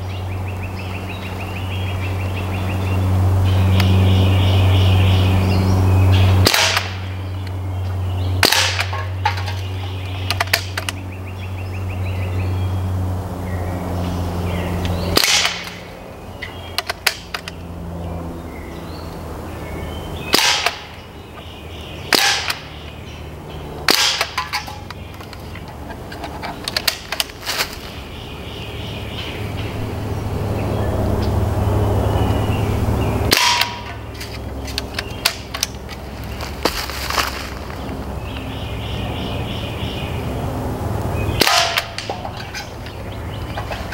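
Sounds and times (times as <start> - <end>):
low steady hum: 0.0 - 43.9
air rifle firing pops: 6.4 - 7.0, 8.4 - 9.0, 15.2 - 15.8, 20.3 - 20.9, 22.1 - 22.6, 23.9 - 24.6.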